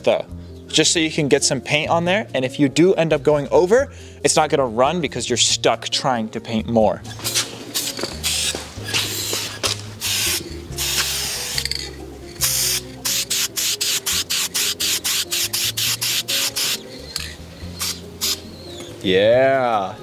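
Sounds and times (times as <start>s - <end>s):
aerosol paint spraying in bursts: 7.3s - 11.7s, 12.4s - 17.0s, 17.6s - 18.5s.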